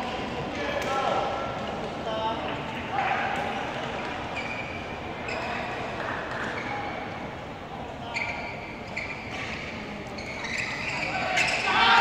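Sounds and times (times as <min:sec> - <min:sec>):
murmur of voices: 0:00.0 - 0:12.0
shoes squeaking on court: 0:04.2 - 0:07.1, 0:08.1 - 0:11.7.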